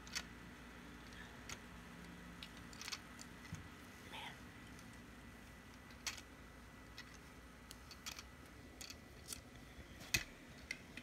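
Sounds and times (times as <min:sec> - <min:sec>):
plastic bricks clicking: 0:02.4 - 0:03.3, 0:05.8 - 0:06.3, 0:06.9 - 0:09.5.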